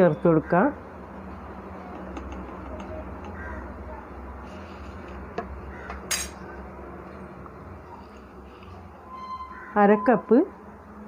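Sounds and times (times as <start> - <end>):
steel spoon clinking on pot: 6.0 - 6.4.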